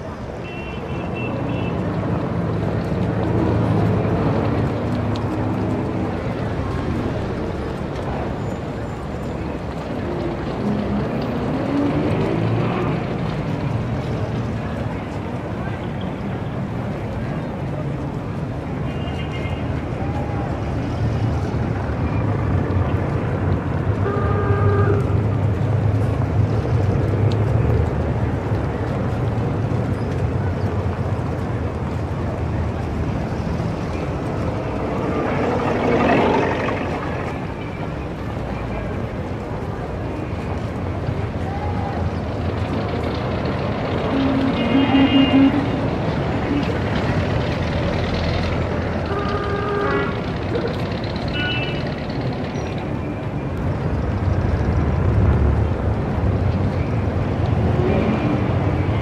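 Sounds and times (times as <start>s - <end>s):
city traffic rumble: 0.0s - 59.0s
vehicle engine passing: 33.2s - 38.2s.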